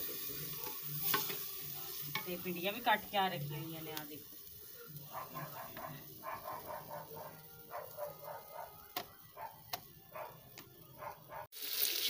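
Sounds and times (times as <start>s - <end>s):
dog barking: 4.8s - 11.5s.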